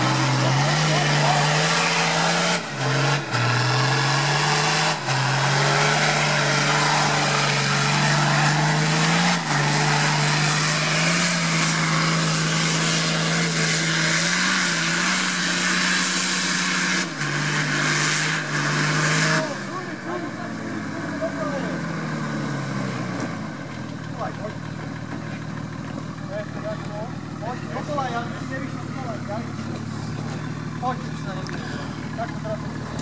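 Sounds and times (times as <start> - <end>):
engine revving high in mud: 0.0 - 24.6.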